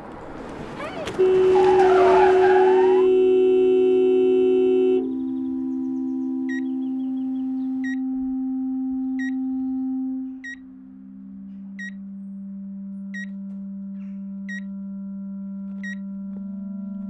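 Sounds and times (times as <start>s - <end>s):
steady low drone: 0.0s - 17.0s
heart monitor beeping: 2.7s - 10.7s, 11.7s - 12.1s, 13.0s - 15.0s, 15.6s - 17.0s.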